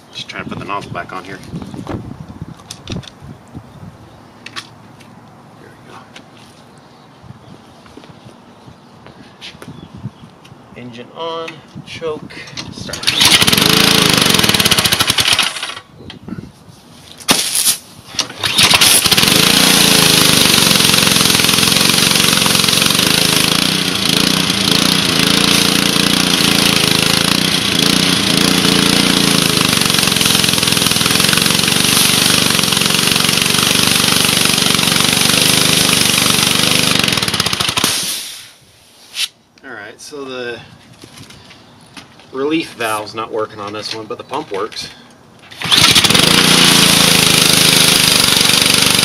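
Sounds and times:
small engine starting and running: 12.5 - 15.9, 17.6 - 38.4, 45.4 - 49.0
hiss of water spray: 37.9 - 39.3.

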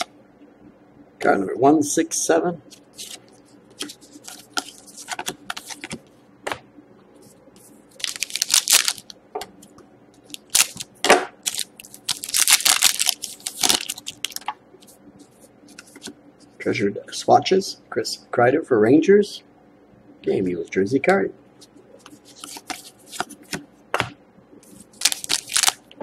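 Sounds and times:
cards rustling: 2.7 - 6.1, 8.0 - 9.1, 10.2 - 14.5, 22.0 - 23.6, 24.6 - 25.8
foil wrapper crinkling and tearing: 8.0 - 9.1, 10.3 - 14.4, 24.9 - 25.9.

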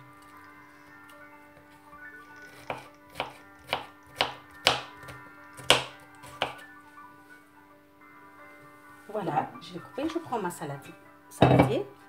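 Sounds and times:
knife chopping on cutting board: 2.6 - 6.6.

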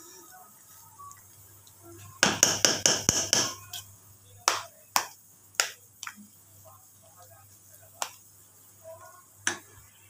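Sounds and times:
metal spoon knocking on pan: 2.2 - 3.8, 4.4 - 6.1.

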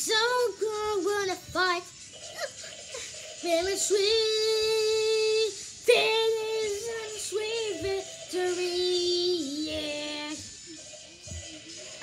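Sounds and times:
child singing unaccompanied: 0.0 - 2.0, 3.4 - 10.5.

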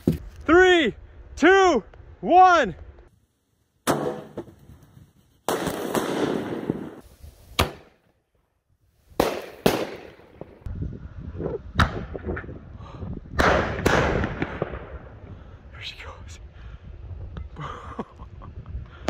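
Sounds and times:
firework booms: 5.4 - 7.0, 13.4 - 15.2.

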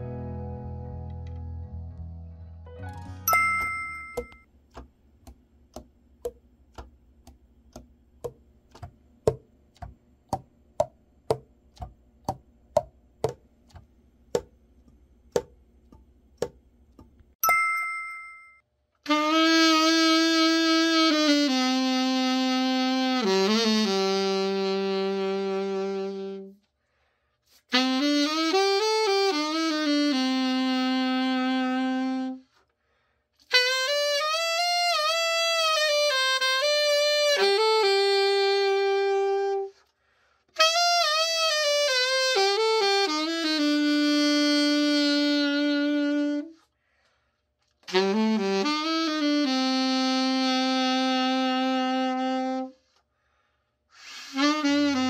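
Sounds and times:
two-tone chime: 3.0 - 4.4, 17.4 - 18.6
saxophone playing held notes: 19.0 - 26.6, 27.7 - 32.6, 33.5 - 39.8, 40.6 - 46.6, 47.9 - 52.9, 54.0 - 55.0.

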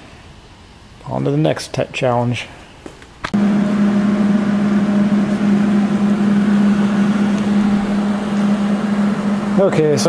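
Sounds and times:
machine hum with whir: 3.3 - 10.0.

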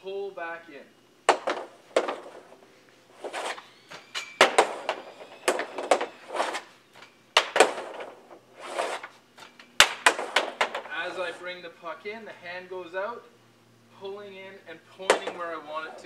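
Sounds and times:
hockey stick clacking pucks: 1.3 - 2.4, 4.2 - 11.4, 15.1 - 16.0
pucks striking net: 1.3 - 2.6, 3.2 - 11.5, 15.0 - 16.0
stick blade scraping ice tiles: 3.2 - 3.6, 4.4 - 11.4.

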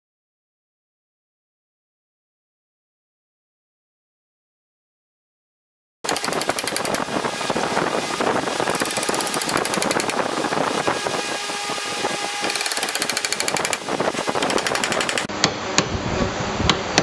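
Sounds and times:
reciprocating saw cutting wood: 6.1 - 15.3.

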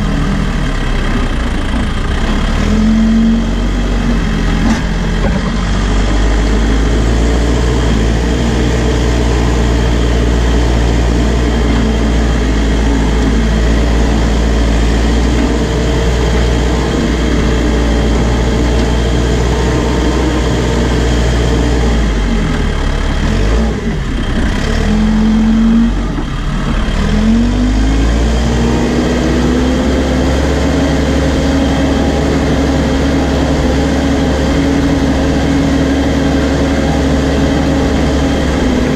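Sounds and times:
diesel engine under load: 0.0 - 38.9
loader bucket pushing dirt: 0.0 - 38.9.

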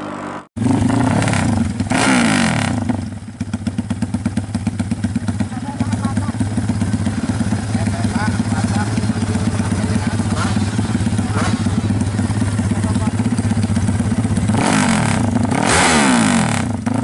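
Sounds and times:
motorcycle engine idling and revving: 0.0 - 17.0.

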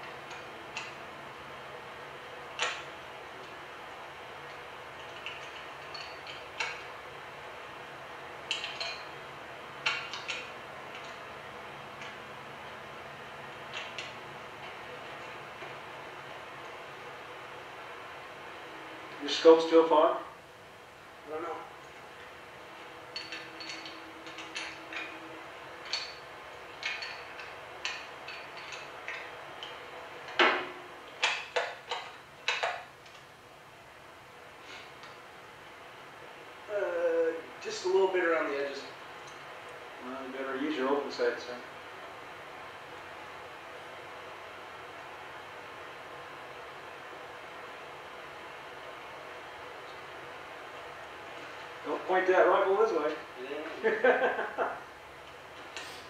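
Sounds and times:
low hum and hiss: 0.0 - 56.0.

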